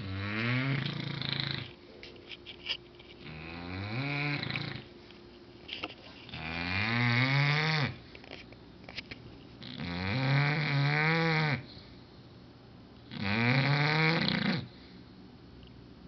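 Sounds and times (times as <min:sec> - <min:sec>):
dog snoring loudly: 0:00.0 - 0:01.8, 0:03.2 - 0:04.9, 0:06.3 - 0:08.0, 0:09.6 - 0:11.7, 0:13.1 - 0:14.7.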